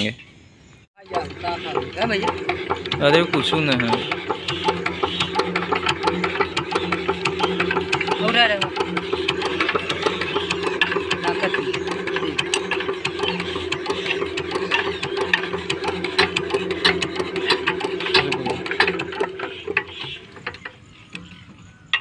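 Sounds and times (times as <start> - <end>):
diesel engine turning over: 1.0 - 22.0.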